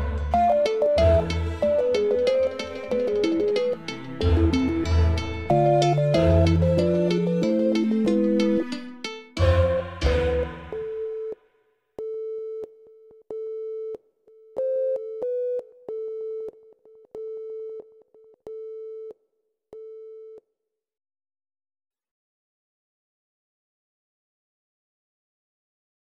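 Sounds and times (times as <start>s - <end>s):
electronic music: 0.0s - 11.4s
telephone-style beeping tone: 0.3s - 8.8s, 10.6s - 11.4s, 14.6s - 16.5s.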